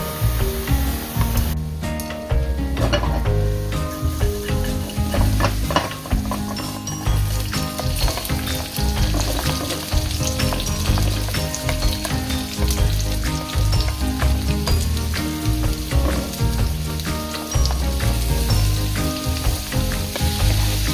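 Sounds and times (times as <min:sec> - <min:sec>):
vegetables sizzling in hot oil: 0:00.0 - 0:02.1, 0:02.8 - 0:20.9
chopsticks stirring in wok: 0:02.8 - 0:20.9.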